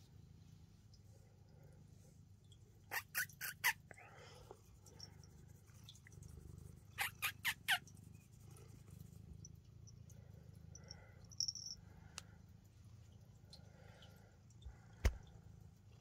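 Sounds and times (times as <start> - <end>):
low steady hum: 0.0 - 2.9, 7.8 - 16.0
sharp animal chirps: 2.9 - 3.8, 6.9 - 7.8.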